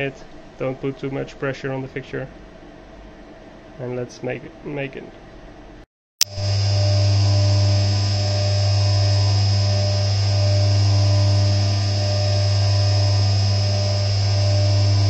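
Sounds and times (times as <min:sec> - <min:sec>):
milling machine hum and whine: 0:06.2 - 0:15.0.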